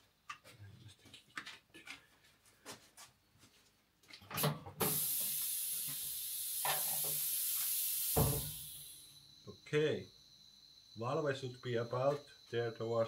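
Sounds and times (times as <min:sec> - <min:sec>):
compressed air hissing: 0:04.4 - 0:09.4.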